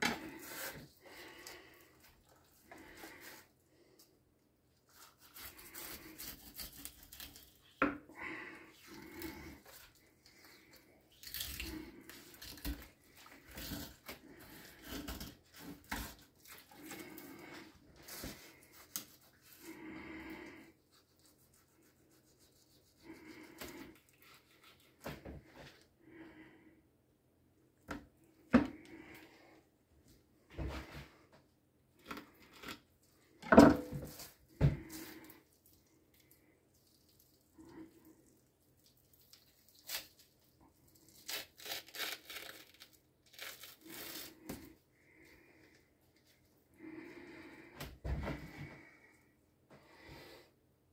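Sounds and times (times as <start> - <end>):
fish fillet tearing: 4.9 - 7.8, 11.1 - 17.1, 39.1 - 44.7
knife cutting fish: 4.9 - 7.8.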